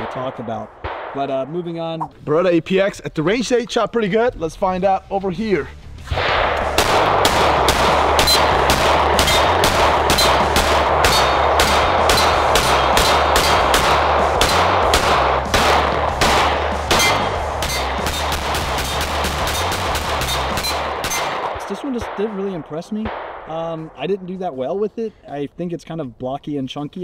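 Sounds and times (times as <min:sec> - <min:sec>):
pistol shots in rapid string: 0:00.0 - 0:01.4, 0:06.1 - 0:23.5.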